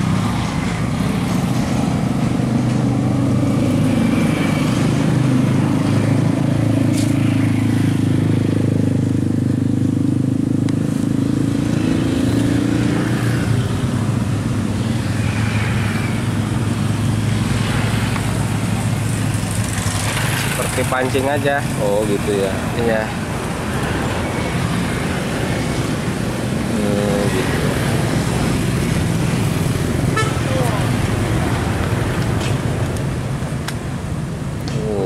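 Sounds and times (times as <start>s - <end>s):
road traffic hum: 0.0s - 35.0s.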